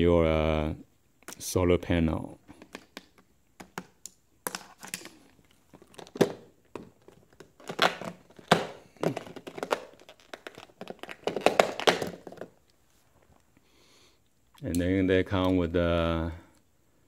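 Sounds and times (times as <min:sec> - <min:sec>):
plastic packaging rustling: 0:04.5 - 0:13.0.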